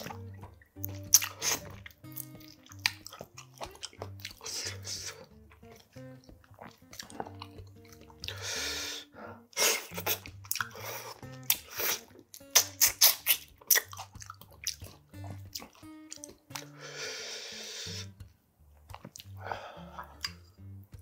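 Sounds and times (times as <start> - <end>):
wet chewing and mouth smacks: 0.0 - 8.9, 9.5 - 16.8, 18.0 - 21.0
soft background music: 0.0 - 21.0
person slurping food: 0.8 - 5.8, 6.6 - 15.0, 16.6 - 18.2.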